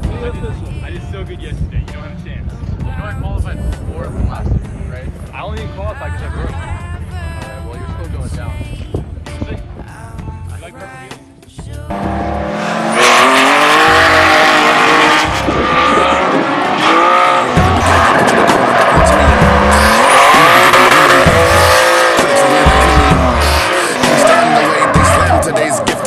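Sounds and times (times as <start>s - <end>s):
music: 0.0s - 26.0s
car engines revving: 11.9s - 26.0s.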